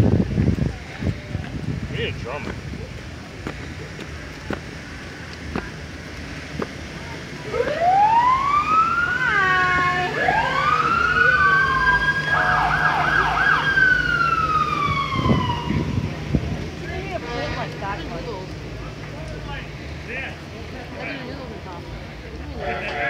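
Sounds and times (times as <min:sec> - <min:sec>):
electronic siren wailing and yelping: 0:07.6 - 0:15.8.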